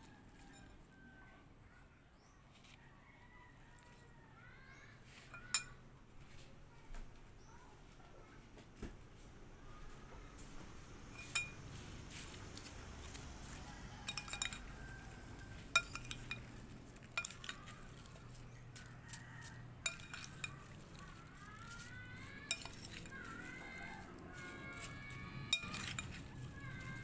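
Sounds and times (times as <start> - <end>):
metal spoon clinking in ceramic bowl: 5.1 - 5.8, 11.2 - 27.0.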